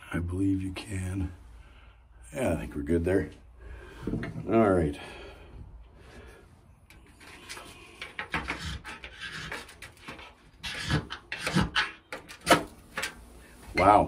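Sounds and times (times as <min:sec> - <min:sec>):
ferro rod scraped with striker: 0:07.2 - 0:12.3.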